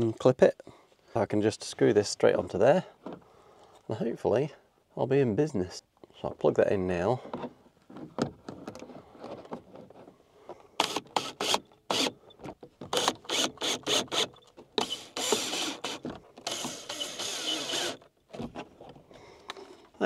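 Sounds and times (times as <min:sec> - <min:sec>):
cordless drill driving screws: 0:10.8 - 0:12.2, 0:12.8 - 0:18.1.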